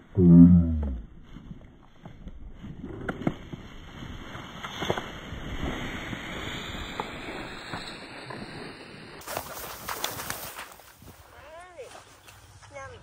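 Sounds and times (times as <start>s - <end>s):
rice stalks rustling: 1.2s - 12.6s.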